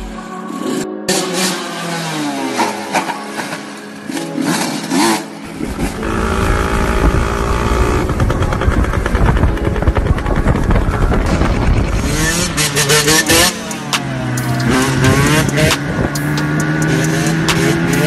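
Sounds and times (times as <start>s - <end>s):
dirt bike engines revving: 11.3s - 18.0s.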